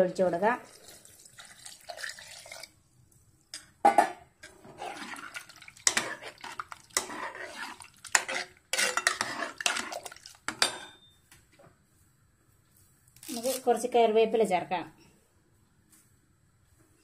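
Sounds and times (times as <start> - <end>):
liquid pouring into a pot: 0.6 - 2.8, 4.5 - 10.6
ladle clinking and scraping metal pot: 4.0 - 11.1.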